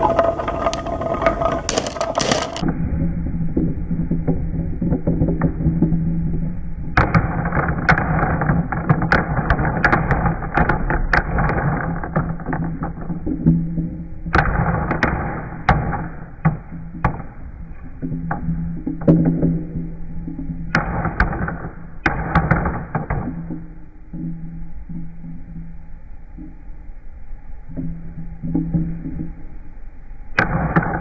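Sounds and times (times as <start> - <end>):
marbles clicking together: 0.0 - 2.7
marbles rolling on wooden track: 0.0 - 2.7, 3.6 - 17.2.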